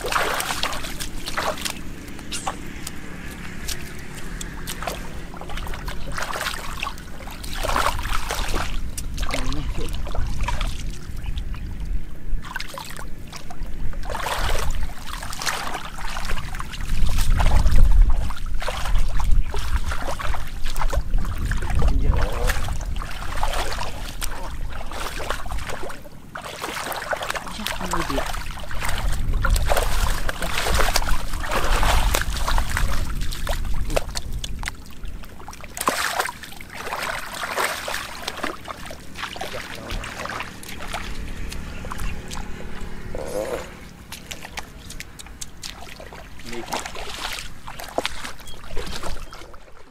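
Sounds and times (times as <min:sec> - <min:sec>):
low rumble: 0:00.0 - 0:26.2
feet wading in muddy water: 0:00.0 - 0:49.9.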